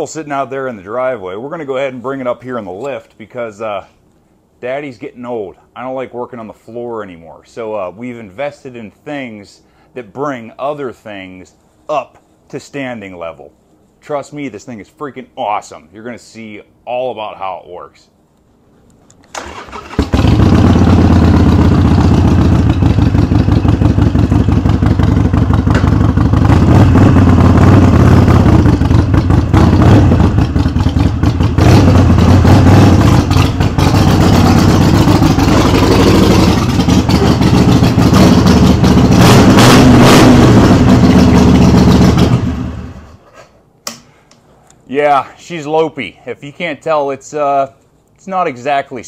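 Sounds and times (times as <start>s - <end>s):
motorcycle engine cranking: 19.3s - 26.5s, 30.3s - 39.2s
motorcycle engine lopey idle: 20.0s - 39.2s, 40.6s - 42.6s.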